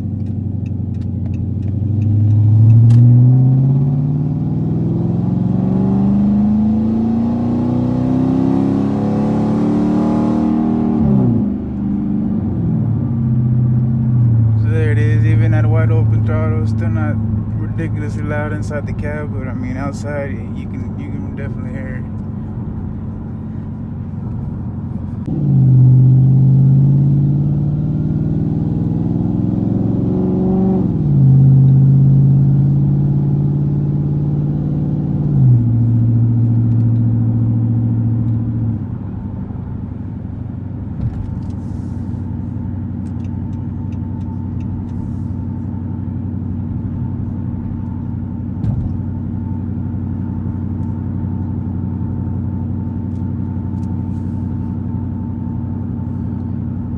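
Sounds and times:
car engine accelerating: 0.0s - 56.9s.

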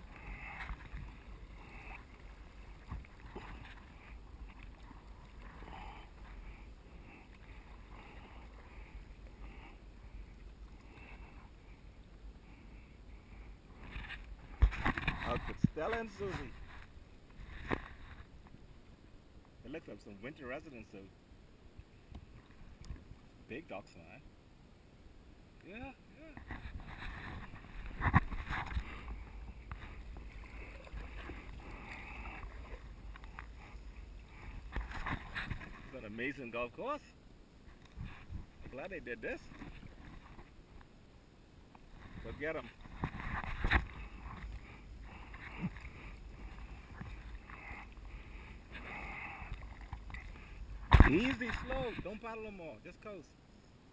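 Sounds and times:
kayak paddle splashes: 0.0s - 11.9s, 26.4s - 36.2s, 41.8s - 52.2s
water lapping at hull: 0.0s - 19.1s, 26.2s - 41.0s, 41.8s - 52.4s
wind rumble on microphone: 37.7s - 40.6s.

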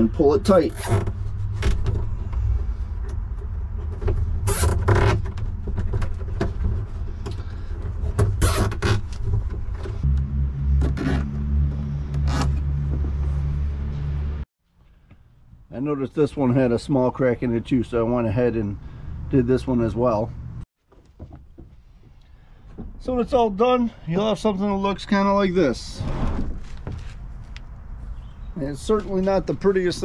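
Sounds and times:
steady low rumble: 9.7s - 14.5s.

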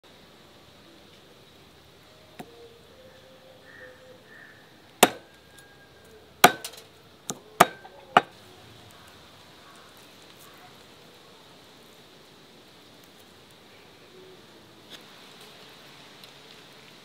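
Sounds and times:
cleaver chopping on wooden board: 5.0s - 5.3s, 6.4s - 8.3s.

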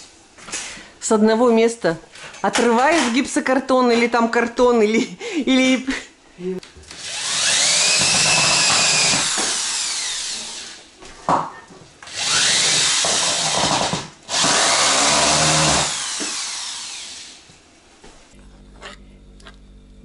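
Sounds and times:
electric drill whining: 6.9s - 10.8s, 12.1s - 17.5s.

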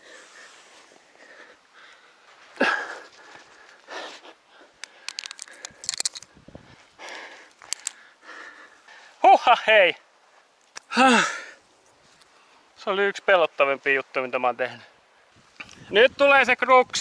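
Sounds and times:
person breathing hard: 0.0s - 9.2s
carabiners clicking and jingling: 4.9s - 6.3s, 7.6s - 8.0s.

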